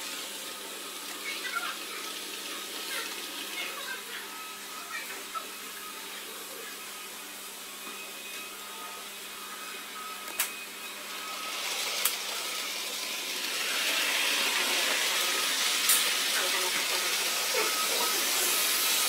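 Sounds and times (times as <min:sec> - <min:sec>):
model train running hiss: 0:11.1 - 0:19.0.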